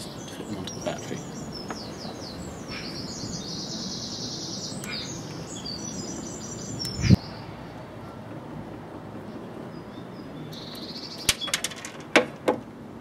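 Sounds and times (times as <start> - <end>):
songbird chirping and trilling: 0.0 - 8.4, 9.2 - 11.9.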